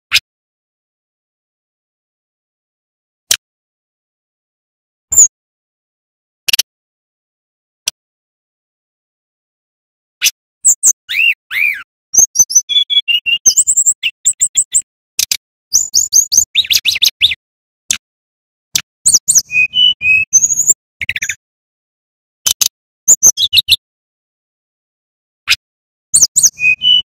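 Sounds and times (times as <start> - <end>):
bird singing chirps and whistles: 5.1 - 5.3, 10.6 - 17.4, 19.1 - 21.4, 22.5 - 23.8, 26.2 - 27.0.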